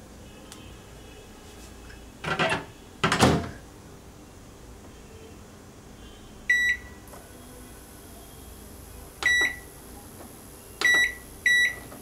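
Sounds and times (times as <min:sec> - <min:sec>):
microwave short high beeps: 0:06.5 - 0:06.9, 0:09.2 - 0:09.7, 0:10.8 - 0:11.9.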